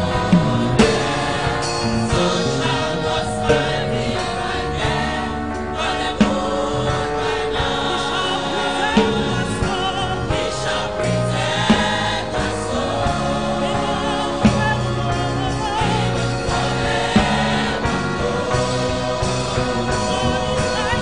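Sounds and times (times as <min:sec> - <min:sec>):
gospel choir singing: 0:00.0 - 0:21.0
held bass notes: 0:00.0 - 0:21.0
sharp beat: 0:00.0 - 0:21.0.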